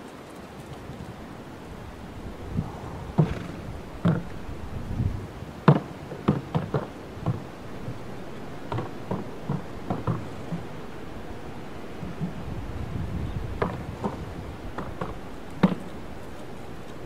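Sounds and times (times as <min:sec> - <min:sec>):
horse hooves on wooden bridge: 0:03.2 - 0:17.0.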